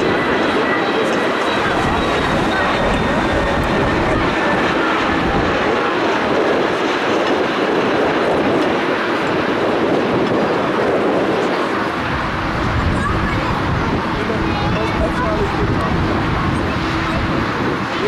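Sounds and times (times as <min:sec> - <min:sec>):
jet airliner engine and airframe rush: 0:00.0 - 0:18.0.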